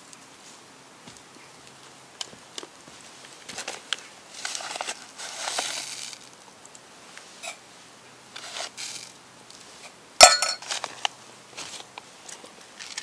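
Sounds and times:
soft rustling and shuffling: 0.0s - 6.4s, 7.0s - 13.0s
metal spoon clinking enamel mug: 10.2s - 10.6s.

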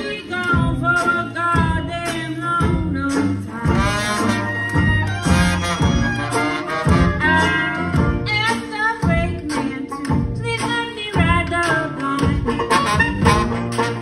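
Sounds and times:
jazz band playing: 0.0s - 14.0s
sousaphone bass line: 0.5s - 9.5s
brass and reed melody: 3.5s - 8.6s, 12.5s - 14.0s.

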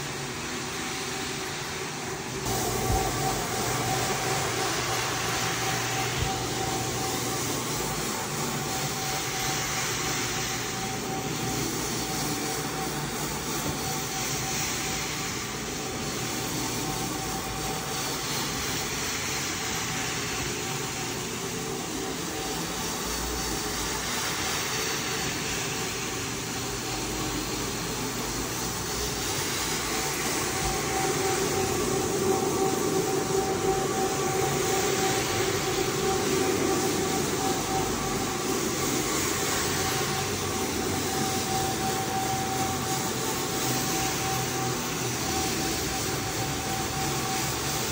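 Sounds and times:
machine hum: 0.0s - 47.9s
deeper machine hum: 2.3s - 14.6s.

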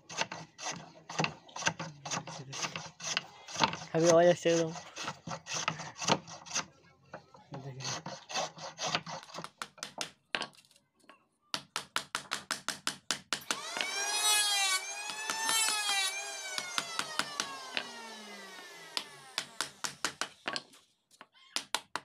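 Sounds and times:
hand plane shaving wood: 0.0s - 6.7s, 7.6s - 9.6s, 13.5s - 19.8s.

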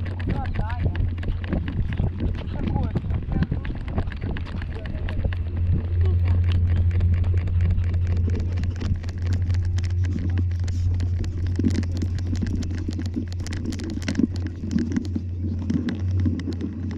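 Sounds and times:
footsteps and handling clicks: 0.0s - 16.9s
wind noise drone: 0.0s - 16.9s.

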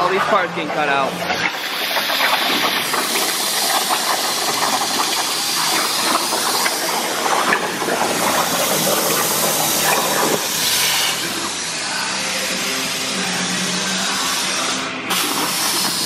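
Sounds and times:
plasma cutter hissing and crackling: 1.3s - 16.0s.

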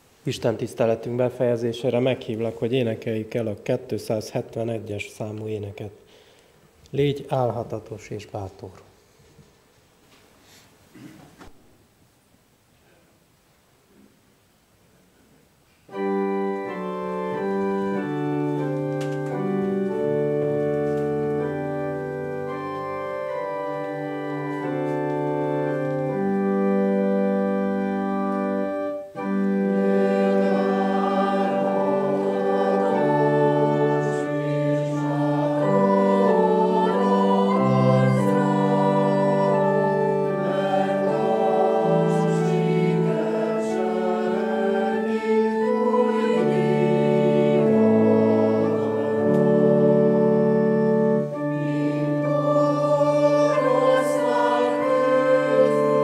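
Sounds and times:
congregation singing a hymn: 15.9s - 56.0s
organ playing held chords: 15.9s - 56.0s.

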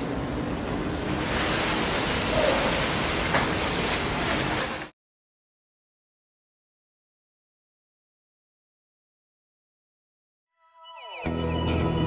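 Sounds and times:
water rushing from propeller wash: 0.0s - 4.9s.

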